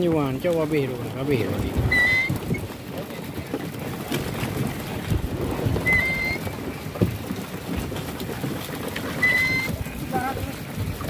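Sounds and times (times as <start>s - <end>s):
water splashing against boat hull: 0.0s - 11.0s
dull knocks: 1.3s - 9.9s
short high squeak: 5.8s - 6.4s, 9.2s - 9.7s.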